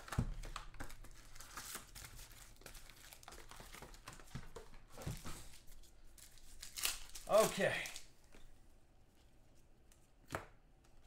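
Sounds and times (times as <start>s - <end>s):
foil packs crinkling: 6.2s - 8.1s.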